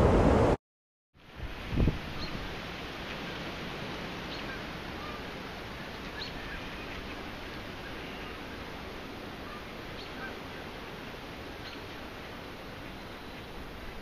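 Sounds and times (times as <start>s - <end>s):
breeze rushing: 0.0s - 0.6s
faint bird chirps: 4.3s - 8.7s, 9.4s - 10.5s, 11.6s - 12.0s.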